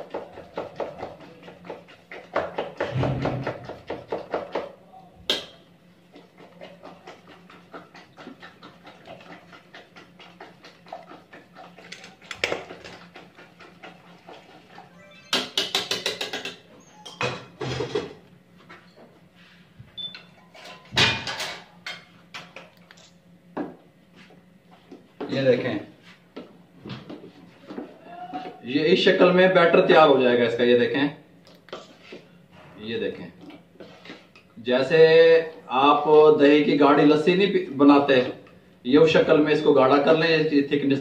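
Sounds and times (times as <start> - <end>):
batter squelching in a bowl: 0.0 - 4.9, 5.6 - 15.0, 31.4 - 35.6.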